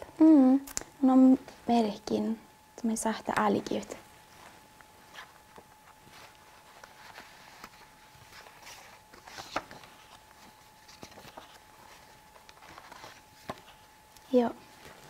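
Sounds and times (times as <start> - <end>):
faint steady hum: 0.0 - 15.0
book pages rustling: 4.2 - 15.0.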